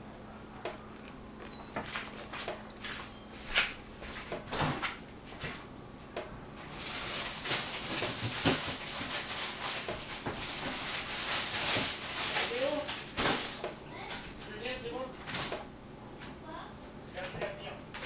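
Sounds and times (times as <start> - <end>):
person chewing crunchy vegetable: 0.9 - 3.2.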